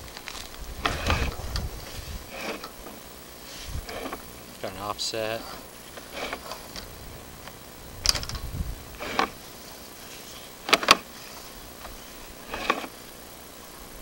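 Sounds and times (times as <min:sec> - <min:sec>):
camera scraping in drain pipe: 0:00.3 - 0:02.8, 0:03.4 - 0:04.3, 0:05.4 - 0:06.9, 0:08.1 - 0:13.0.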